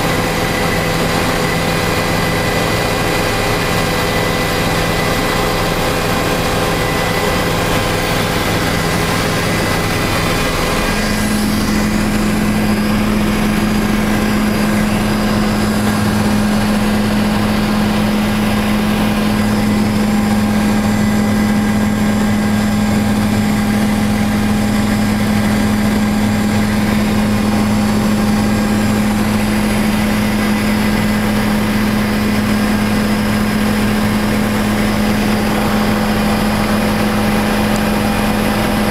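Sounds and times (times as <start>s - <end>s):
strong low hum: 0.0s - 38.8s
helicopter rotor and engine drone: 0.0s - 38.9s.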